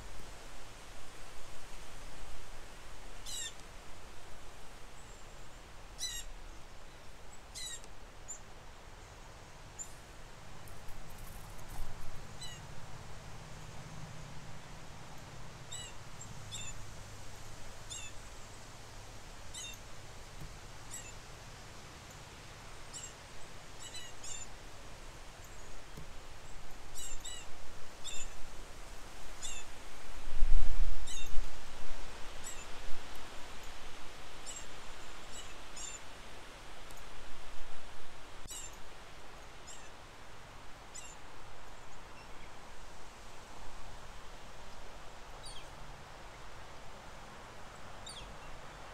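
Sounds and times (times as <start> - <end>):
small birds chirping: 3.2 - 3.6, 11.1 - 12.7, 14.6 - 16.8, 17.8 - 18.5, 19.5 - 19.8, 20.4 - 21.2, 22.9 - 23.2, 23.8 - 24.5, 38.5 - 38.8.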